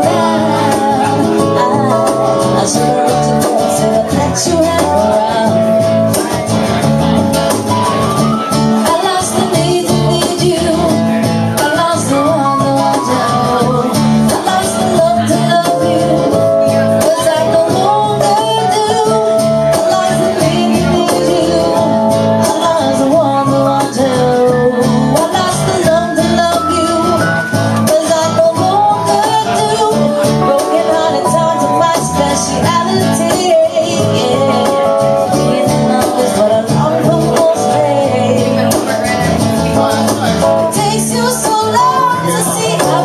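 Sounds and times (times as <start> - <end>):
woman singing: 0.0 - 6.4, 7.8 - 38.9, 40.6 - 43.0
strummed acoustic guitars: 0.0 - 43.0.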